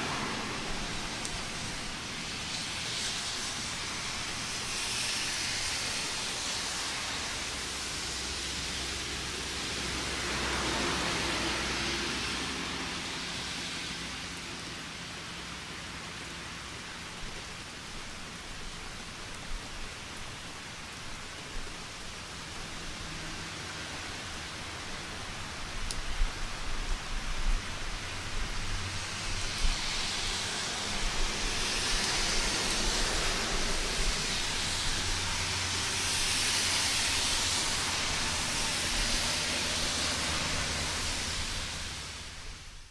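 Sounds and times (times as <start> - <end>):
rain falling: 0.0 - 42.9.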